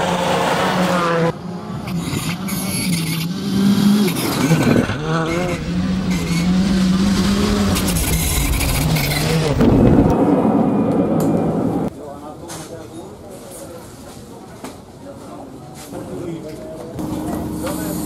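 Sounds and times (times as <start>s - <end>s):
loud rough noise: 0.0s - 11.9s
rally car engine revving: 0.0s - 11.9s.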